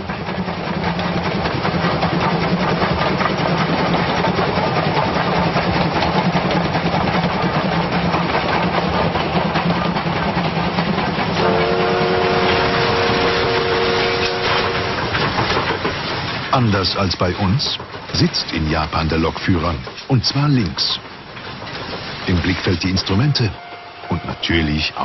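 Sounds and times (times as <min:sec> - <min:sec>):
steam locomotive clatter: 0:00.0 - 0:25.0
steam whistle chord: 0:11.4 - 0:15.0, 0:23.6 - 0:24.5.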